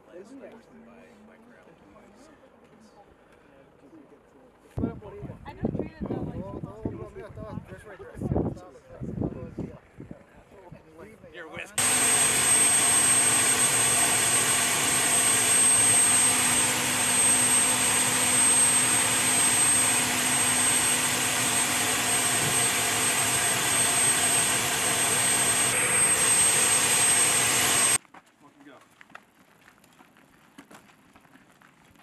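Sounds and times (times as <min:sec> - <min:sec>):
helicopter turbine rush and whine: 0:11.8 - 0:28.0.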